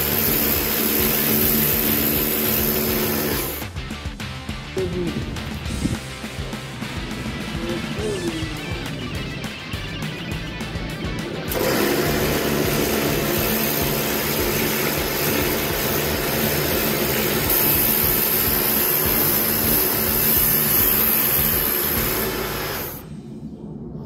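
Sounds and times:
motor hum: 0.0 - 3.7, 11.0 - 23.1
pressure washer spraying metal: 0.0 - 3.8, 11.4 - 23.0.

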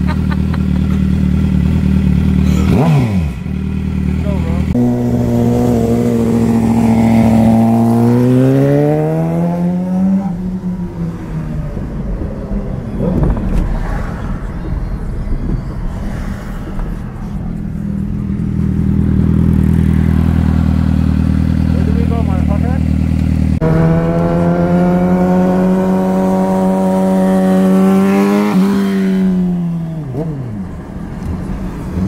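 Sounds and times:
road and traffic noise: 0.0 - 32.0
vehicle engine accelerating: 0.0 - 32.0.

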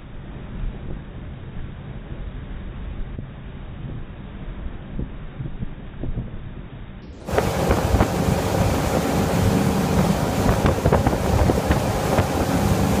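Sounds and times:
boat wake rushing: 7.1 - 13.0
boat engine running: 7.2 - 13.0
wind buffeting microphone: 7.2 - 13.0.

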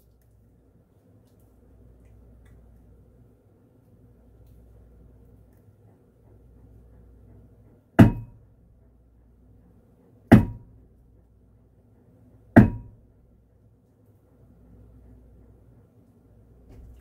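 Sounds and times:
metal dumbbell banging on ceiling: 8.0 - 8.5, 10.3 - 10.8, 12.6 - 13.0.

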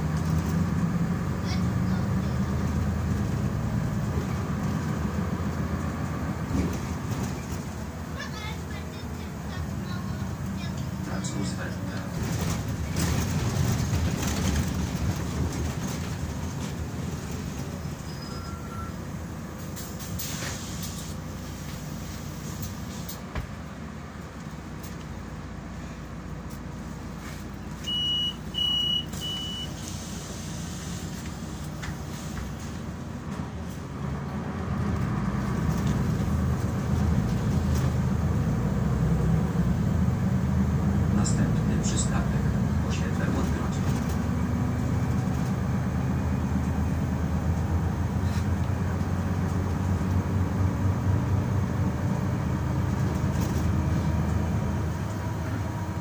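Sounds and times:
bus engine and road noise: 0.0 - 56.0
short high beeps: 18.1 - 19.0, 27.9 - 29.7.

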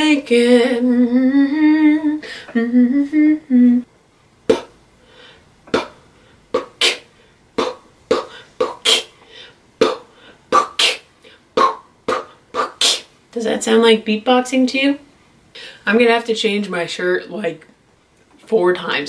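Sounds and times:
woman humming: 0.3 - 3.9
beatboxing pops and clicks: 4.5 - 4.8, 5.6 - 9.2, 9.8 - 13.1.

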